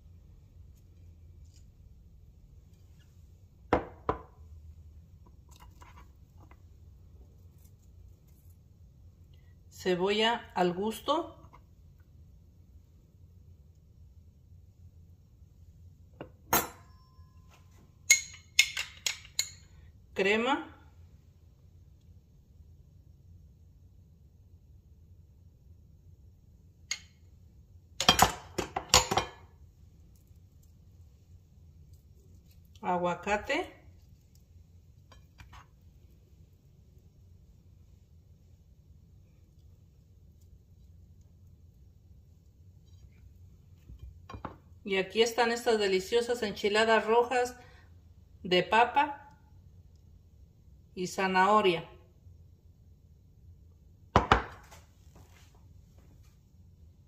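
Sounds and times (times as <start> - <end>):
glass bowl knocking on countertop: 3.7 - 4.3, 54.2 - 54.7
metal spoon clinking on bowl: 16.5 - 17.4, 18.0 - 19.7.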